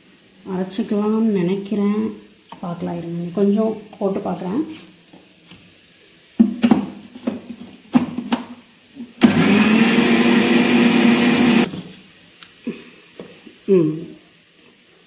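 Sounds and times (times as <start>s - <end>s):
mixer grinder grinding spices: 9.2s - 11.7s.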